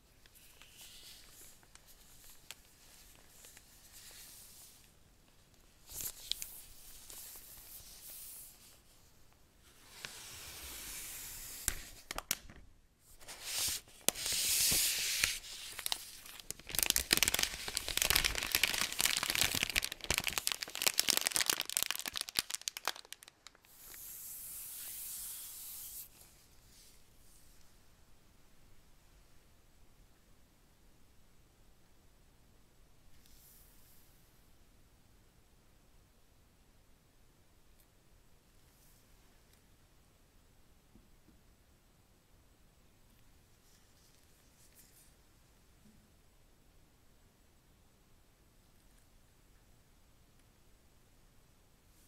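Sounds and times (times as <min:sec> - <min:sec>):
plastic wrap crinkling as peeled: 0:13.5 - 0:24.0.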